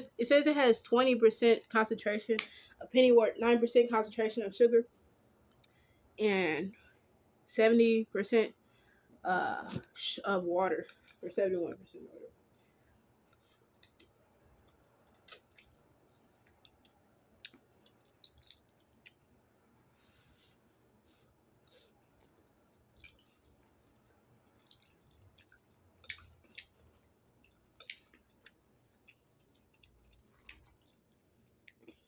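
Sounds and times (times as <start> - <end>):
wet mouth sounds of eating: 13.3 - 19.2, 21.6 - 32.0.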